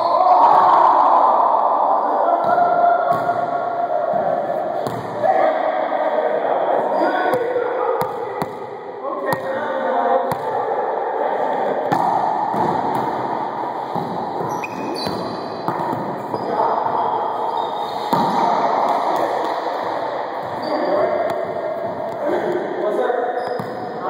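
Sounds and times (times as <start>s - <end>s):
sneakers squeaking on floor: 13.9s - 18.2s, 20.4s - 21.4s, 23.3s - 24.0s.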